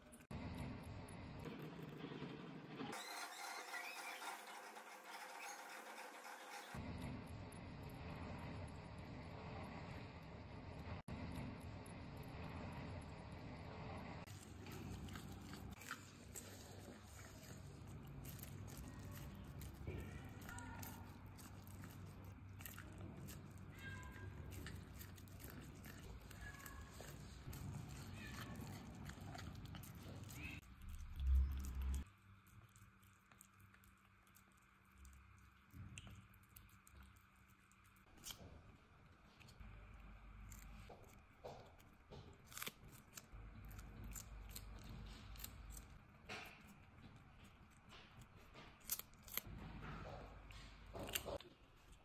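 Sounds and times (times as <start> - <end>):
cat chewing: 11.1 - 52.0
kitten crunching cucumber: 14.3 - 52.0.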